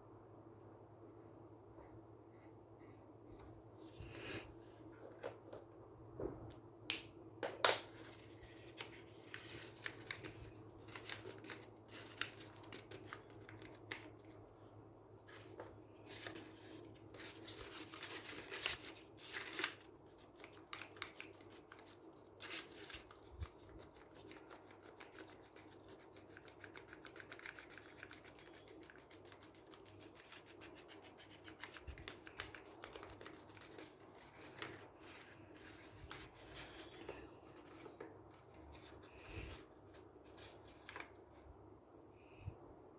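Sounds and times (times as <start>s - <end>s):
faint steady hum: 0.0s - 42.9s
paper rustling and crinkling: 7.8s - 14.4s, 15.2s - 41.4s
sharp paper clicks: 17.2s - 33.9s.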